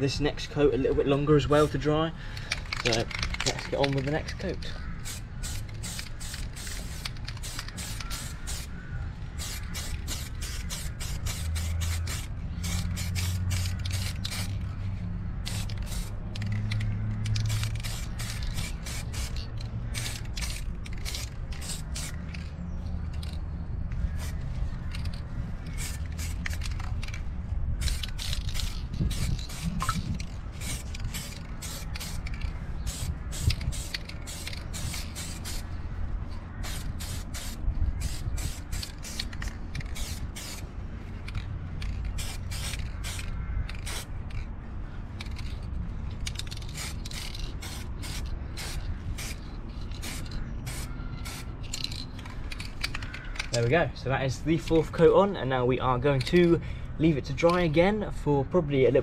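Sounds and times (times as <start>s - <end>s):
spray paint can hissing: 4.7s - 8.8s, 9.4s - 14.7s, 15.4s - 22.5s, 24.1s - 27.2s, 27.8s - 35.8s, 36.6s - 40.7s, 41.8s - 44.4s, 46.2s - 52.7s.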